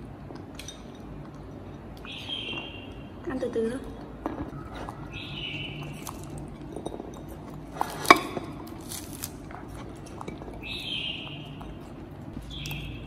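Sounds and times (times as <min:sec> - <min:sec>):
fruit tearing and squishing: 0:07.8 - 0:10.0.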